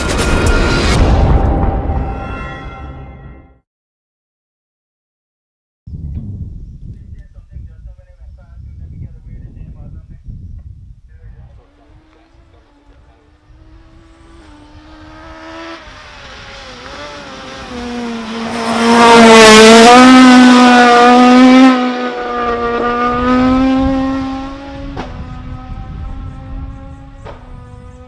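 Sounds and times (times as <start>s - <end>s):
rally car engine passing: 11.6s - 28.0s.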